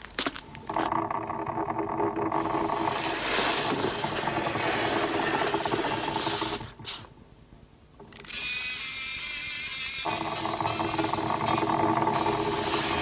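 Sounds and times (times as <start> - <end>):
wooden box scraping: 0.8 - 6.6.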